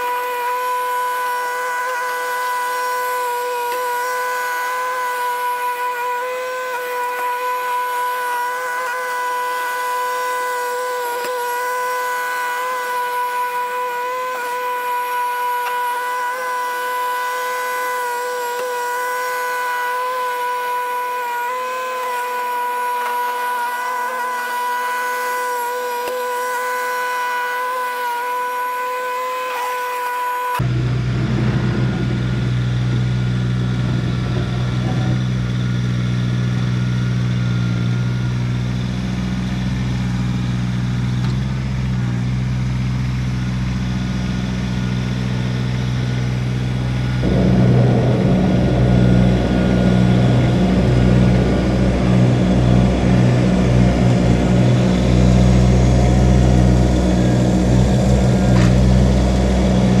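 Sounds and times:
tractor diesel engine running: 30.6 - 60.0.

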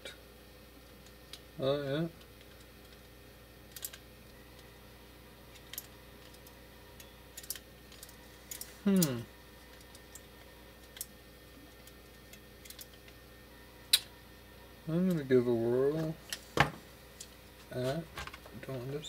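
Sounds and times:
man humming: 8.8 - 9.4.

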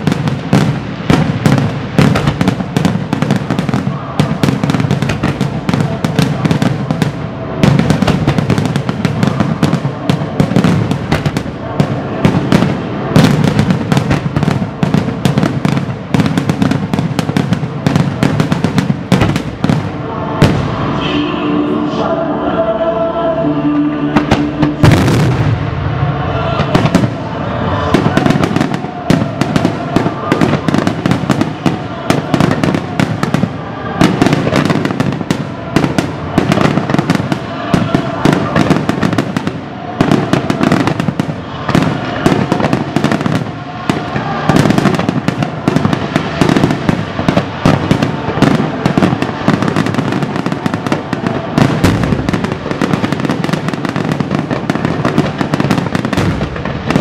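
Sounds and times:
fireworks crackling: 0.0 - 21.7, 24.1 - 57.0.

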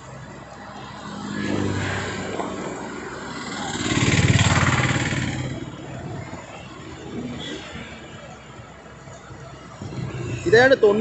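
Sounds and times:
engine noise rising: 0.8 - 8.0.

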